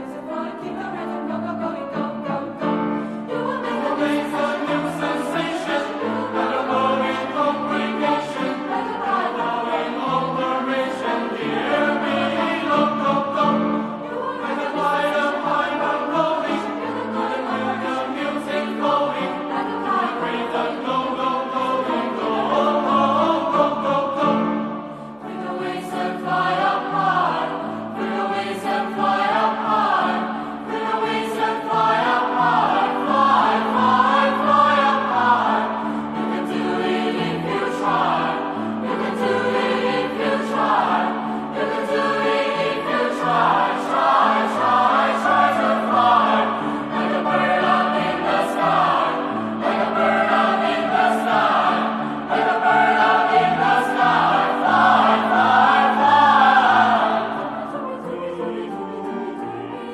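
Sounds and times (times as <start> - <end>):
choir singing in harmony: 0.0 - 59.9.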